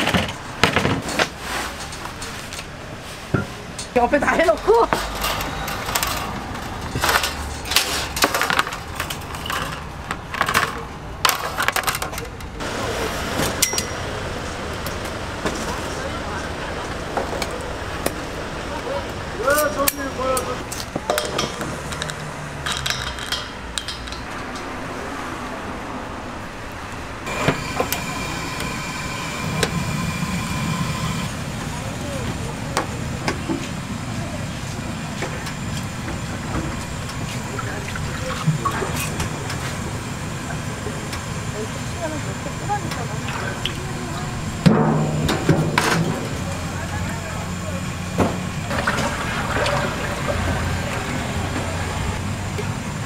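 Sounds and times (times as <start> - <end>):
gas burner rumble: 0.0 - 25.0, 26.4 - 53.0
metal pans and racks clattering: 3.2 - 12.4.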